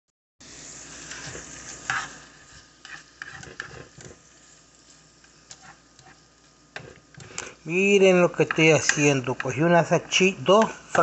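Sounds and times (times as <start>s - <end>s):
sausage sizzling in a frying pan: 0.4s - 11.0s
spatula scraping and knocking pan: 1.0s - 4.3s, 5.2s - 11.0s.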